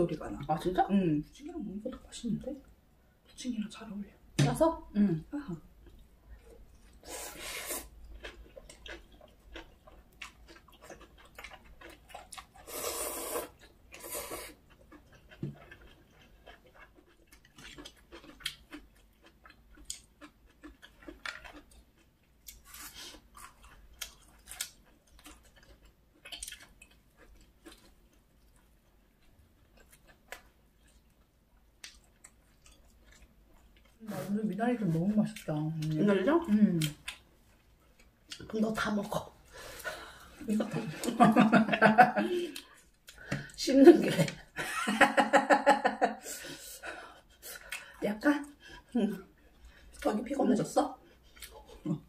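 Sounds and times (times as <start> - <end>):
close-miked chewing: 5.8 - 41.6, 46.4 - 52.0.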